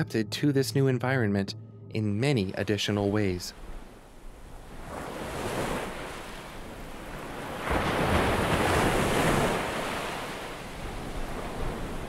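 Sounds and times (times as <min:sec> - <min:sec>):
ocean surf washing: 0:02.4 - 0:12.0.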